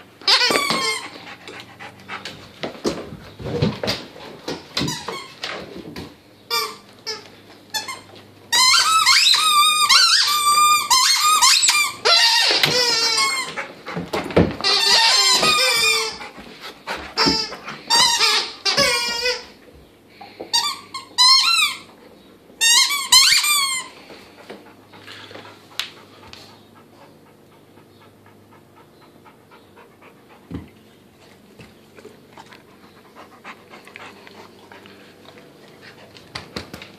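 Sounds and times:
dog toy squeaking: 0.2s - 1.2s, 6.5s - 13.6s, 14.6s - 16.3s, 17.2s - 19.5s, 20.6s - 21.9s, 22.6s - 23.9s.

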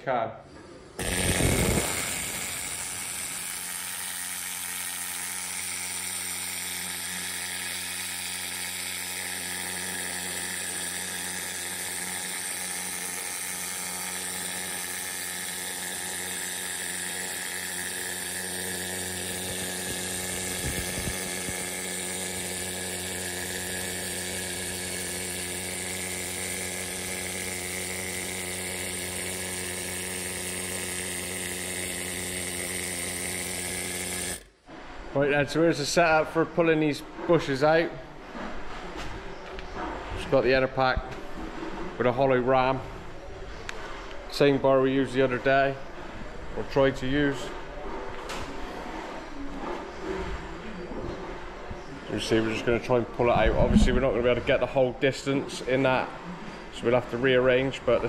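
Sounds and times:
needle scaler hammering metal: 1.0s - 34.5s.

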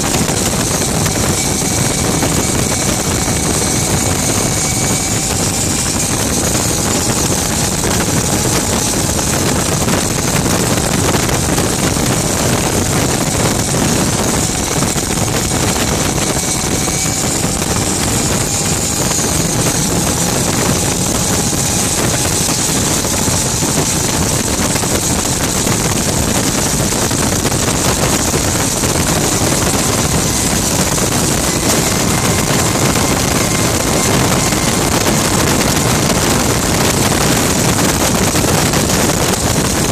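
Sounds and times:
gas turbine whine: 0.0s - 39.9s
wind rushing: 0.0s - 39.9s.

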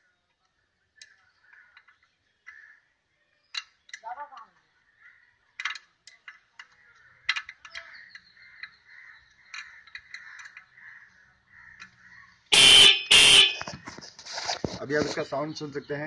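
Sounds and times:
electric horn blasts: 12.5s - 13.7s.

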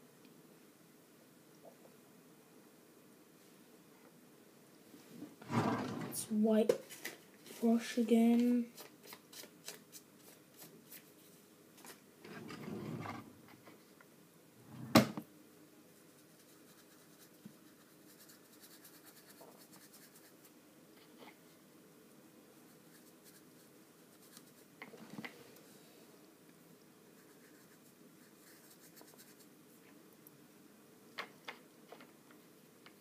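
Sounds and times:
paintbrush scratching on paper: 16.0s - 20.5s, 22.7s - 24.7s, 27.2s - 29.5s.

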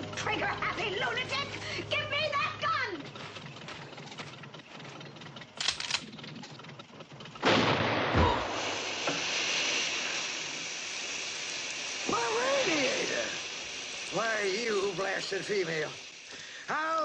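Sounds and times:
steam hissing: 0.0s - 2.9s, 7.4s - 17.0s
shotgun blast: 7.4s - 9.2s.

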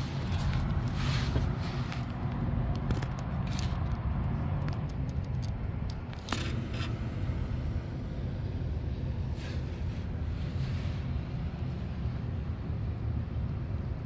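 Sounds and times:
low mechanical hum: 0.0s - 14.0s
camera handling scrapes and clicks: 4.6s - 7.0s.

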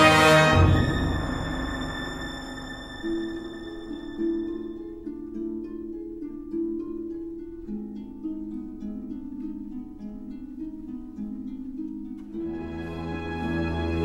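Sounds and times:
plucked-string music: 0.0s - 14.0s.

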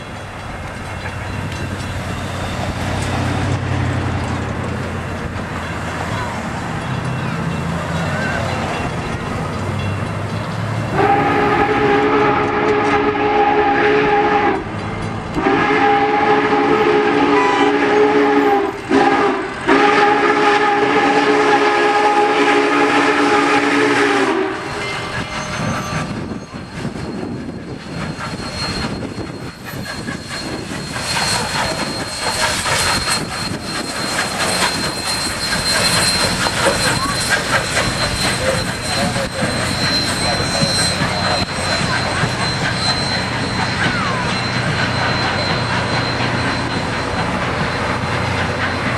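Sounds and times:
train rumbling past: 0.0s - 48.9s
steam locomotive chime whistle: 10.8s - 48.9s.

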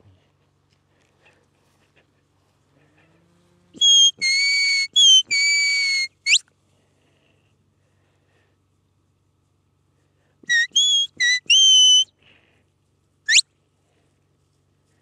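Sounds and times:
herding whistle: 3.8s - 6.4s, 10.5s - 12.1s.

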